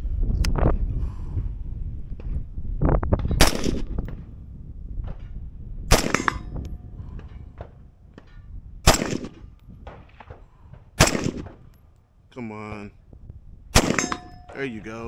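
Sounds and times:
rifle shots with echo: 0:03.4 - 0:04.4, 0:05.9 - 0:06.6, 0:07.2 - 0:11.7, 0:13.7 - 0:15.0.

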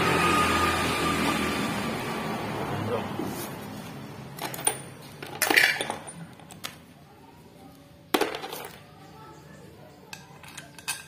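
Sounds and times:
metal tools clinking: 0:04.4 - 0:06.3, 0:10.1 - 0:11.0.

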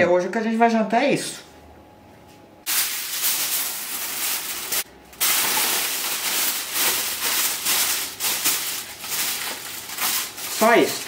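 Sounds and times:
aluminium foil crinkling: 0:02.7 - 0:11.0.

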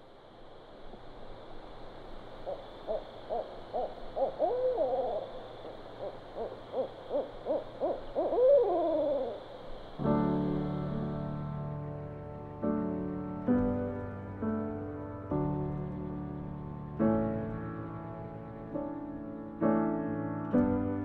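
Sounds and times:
owl hooting: 0:02.3 - 0:10.0.

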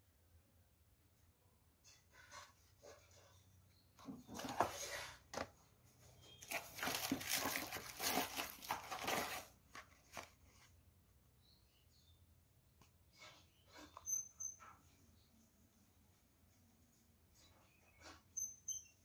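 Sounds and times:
packing paper rustling in box: 0:06.4 - 0:10.4.

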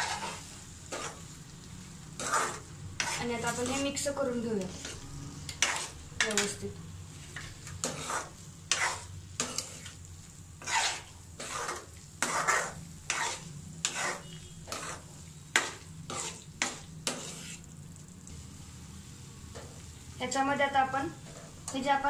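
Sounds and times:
spoon scraping in frying pan: 0:00.0 - 0:17.8.

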